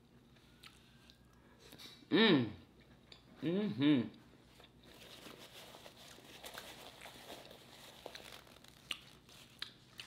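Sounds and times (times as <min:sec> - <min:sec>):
closed-mouth chewing: 0:08.2 - 0:10.0.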